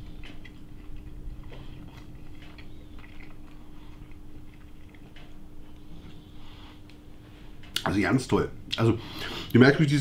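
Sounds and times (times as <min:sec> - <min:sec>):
mouth clicks and smacks chewing: 0:00.0 - 0:07.0
steady low hum: 0:00.0 - 0:10.0.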